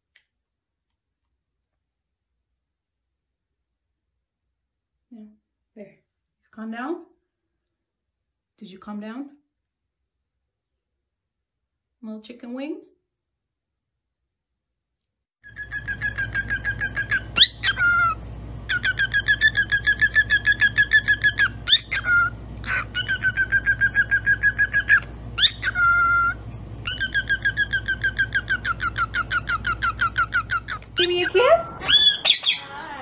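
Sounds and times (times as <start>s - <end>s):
cockatiel chirping: 15.4s - 32.8s
low steady hum: 15.4s - 33.0s.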